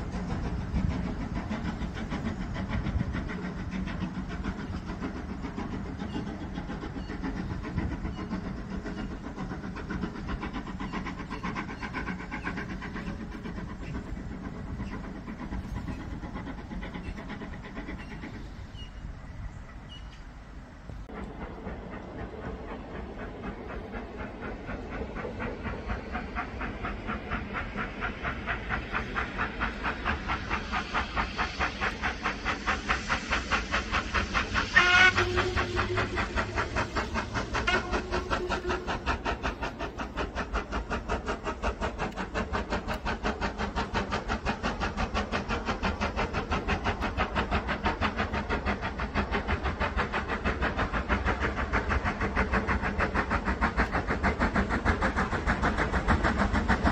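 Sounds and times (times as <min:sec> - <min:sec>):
steam locomotive exhaust beats: 0:00.0 - 0:56.9
steam whistle blast: 0:34.7 - 0:36.6, 0:37.6 - 0:39.1.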